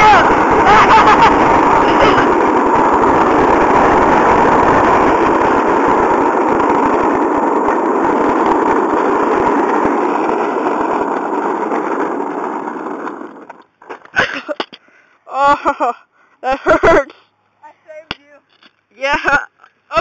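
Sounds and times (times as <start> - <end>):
hard wheels rolling on asphalt: 0.0 - 15.0.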